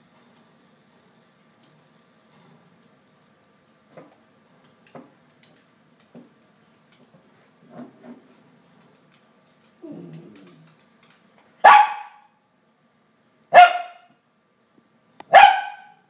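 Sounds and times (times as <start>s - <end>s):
small dog barking: 11.6s - 12.3s, 13.5s - 14.1s, 15.3s - 16.0s.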